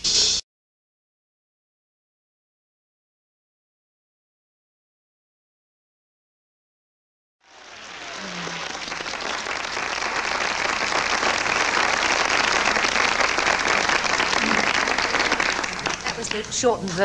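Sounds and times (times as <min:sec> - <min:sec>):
audience applauding: 0:07.4 - 0:17.0.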